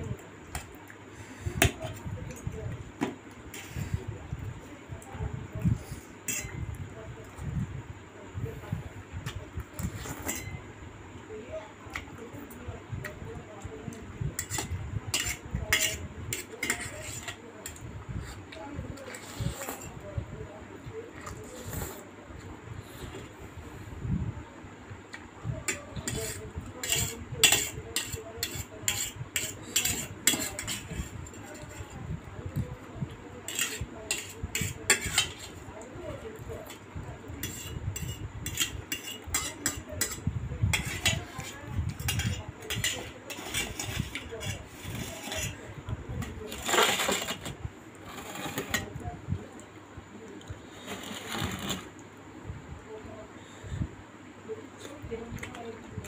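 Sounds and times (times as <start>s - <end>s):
metal spoon scraping a plate: 3.5s - 4.0s, 5.8s - 6.7s, 9.8s - 10.6s, 14.4s - 17.8s, 25.7s - 32.0s, 33.4s - 35.6s, 37.4s - 49.0s, 50.7s - 51.9s.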